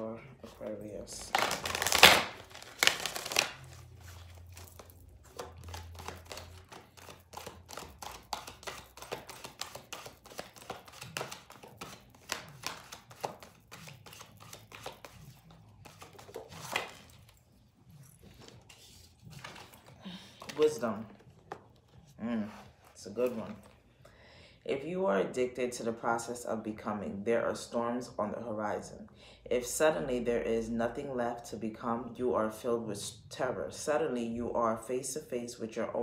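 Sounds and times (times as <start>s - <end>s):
cards being shuffled: 0.5s - 17.5s, 18.1s - 23.8s.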